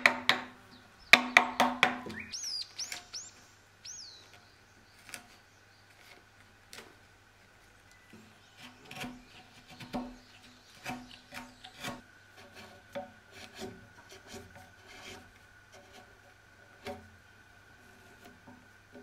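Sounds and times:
chisel scraping wood: 8.1 - 19.0.

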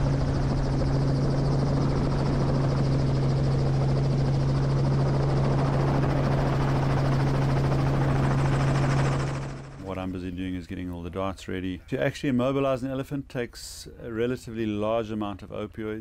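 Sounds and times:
helicopter running: 0.0 - 10.2.

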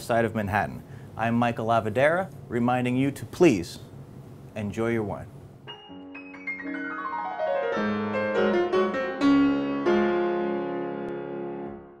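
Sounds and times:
piano jingle with chords: 5.7 - 12.0.

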